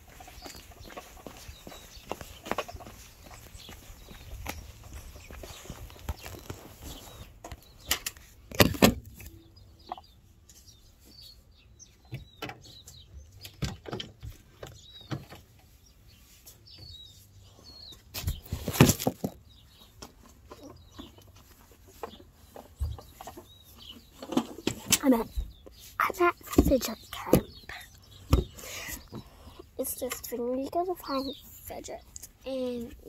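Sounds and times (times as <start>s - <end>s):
microphone handling rustle: 0.1s - 9.2s.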